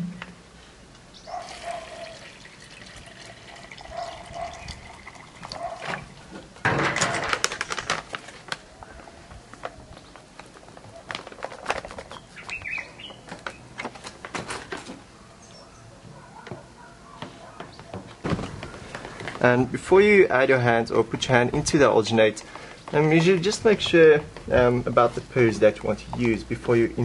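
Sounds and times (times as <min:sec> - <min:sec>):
water pouring into plastic jug: 0:01.4 - 0:06.0
foil packet rustling: 0:06.8 - 0:08.7, 0:10.5 - 0:12.3.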